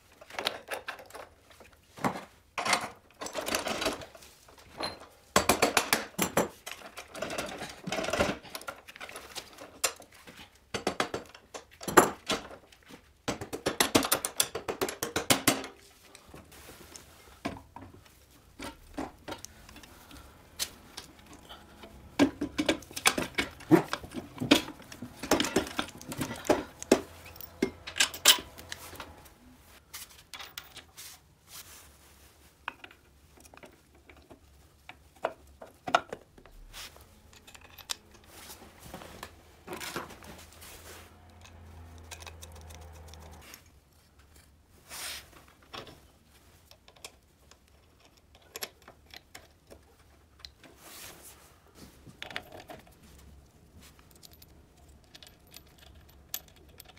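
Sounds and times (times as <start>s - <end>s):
metal knocks and scrapes: 18.6s - 29.4s.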